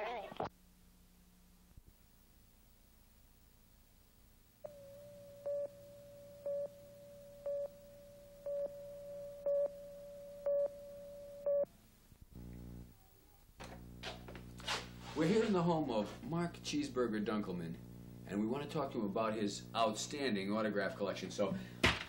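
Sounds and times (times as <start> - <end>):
steady test tone: 4.6 - 11.7
low buzz: 4.6 - 13.0, 17.4 - 19.8
countdown beeps: 4.7 - 11.7.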